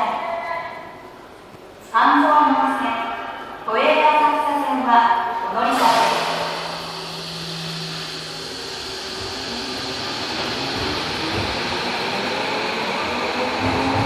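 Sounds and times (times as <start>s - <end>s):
electric train motor whine: 6.2s - 14.0s.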